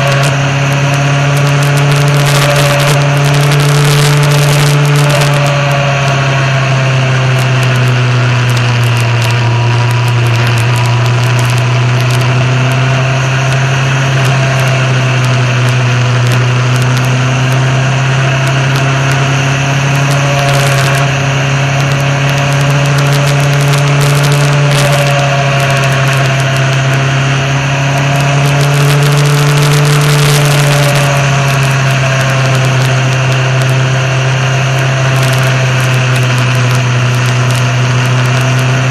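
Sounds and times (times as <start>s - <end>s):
motorcycle engine running: 0.0s - 38.9s
road noise: 0.0s - 38.9s.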